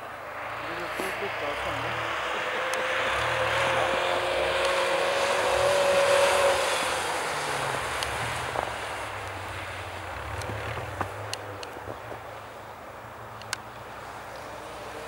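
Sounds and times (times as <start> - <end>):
rally car engine at high revs: 0.4 - 12.2.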